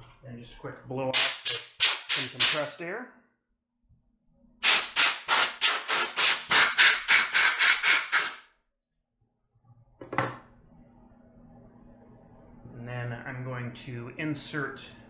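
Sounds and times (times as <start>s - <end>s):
air blow gun hissing blasts: 4.6s - 8.4s.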